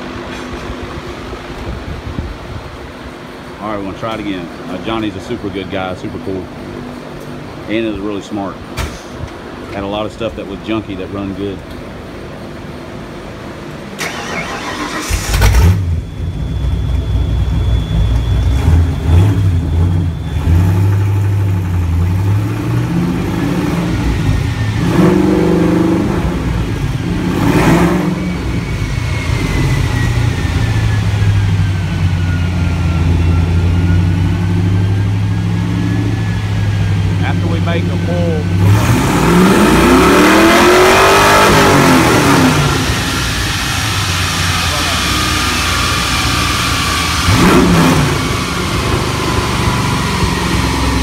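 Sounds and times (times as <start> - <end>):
car engine idling and revving: 0.0 - 51.0
car engine cranking and starting: 14.0 - 40.6.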